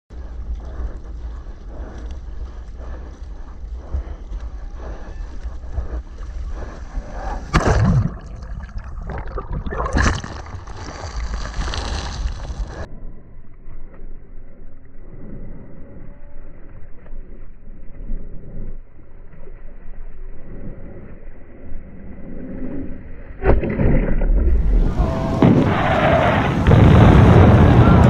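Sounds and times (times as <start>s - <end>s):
low wind rumble: 0.1s - 28.0s
water sloshing and lapping: 5.8s - 12.7s.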